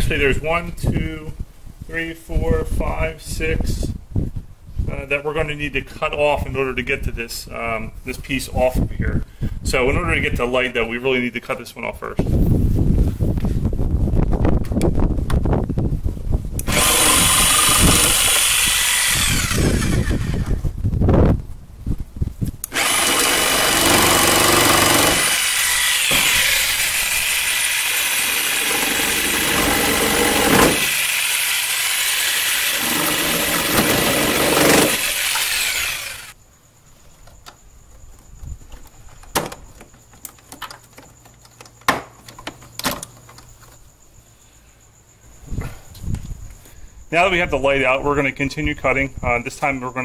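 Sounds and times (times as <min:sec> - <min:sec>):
jigsaw cutting plastic: 0:16.6 - 0:20.6, 0:22.6 - 0:36.3.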